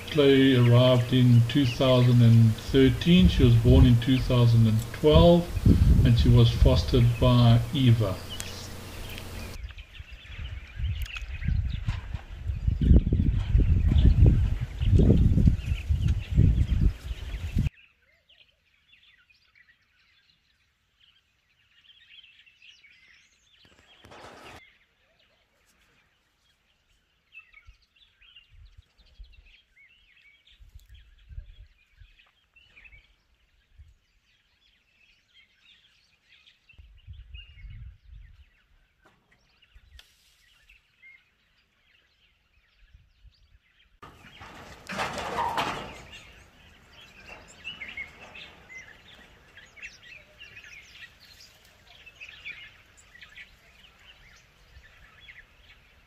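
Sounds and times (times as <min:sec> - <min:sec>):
low rumbles: 0:00.0 - 0:09.6, 0:44.0 - 0:51.1
small birds chirping: 0:00.0 - 0:56.0.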